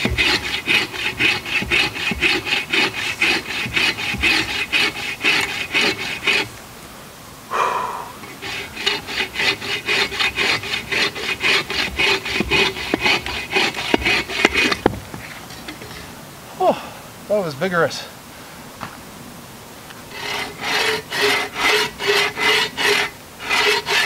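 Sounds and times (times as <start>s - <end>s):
bow saw cutting dry wood: 0.0s - 6.6s, 8.2s - 16.1s, 19.9s - 24.0s.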